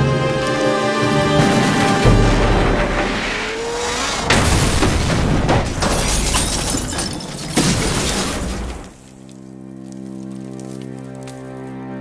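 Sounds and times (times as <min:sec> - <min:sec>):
background music score: 0:00.0 - 0:04.2, 0:08.6 - 0:12.0
car crash impact: 0:04.0 - 0:08.9
rock and debris tumbling: 0:04.3 - 0:11.4.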